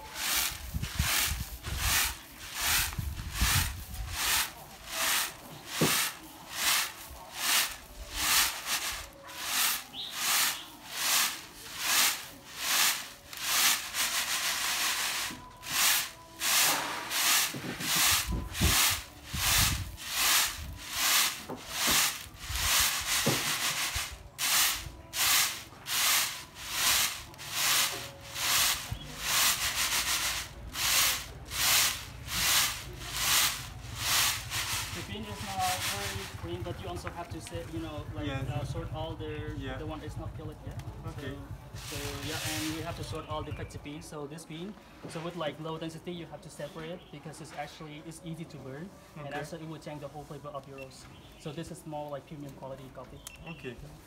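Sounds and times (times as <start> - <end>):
beans rattling on a winnowing tray: 0.0 - 36.4, 41.7 - 43.2.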